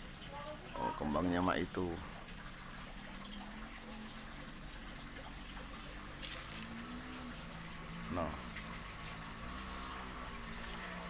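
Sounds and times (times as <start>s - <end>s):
outdoor background noise: 0.0s - 11.0s
leaves brushing against phone: 5.7s - 6.8s.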